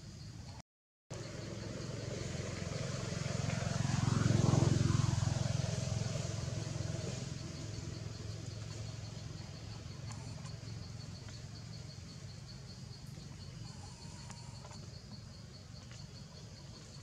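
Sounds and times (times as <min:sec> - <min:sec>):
motor vehicle passing by: 0:01.1 - 0:17.0.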